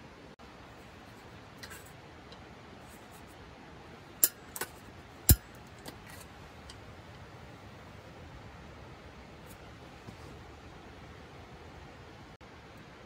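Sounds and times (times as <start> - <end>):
gas stove igniter clicks: 4.2 - 4.7.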